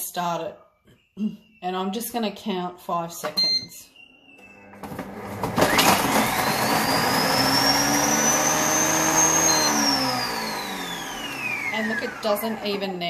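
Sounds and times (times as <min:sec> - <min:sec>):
short beep: 0:03.4 - 0:04.6
food processor motor whine: 0:04.3 - 0:13.0.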